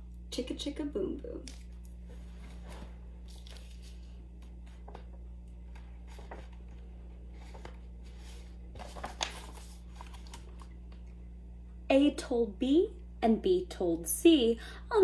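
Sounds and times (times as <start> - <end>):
book pages turning: 1.4 - 11.1.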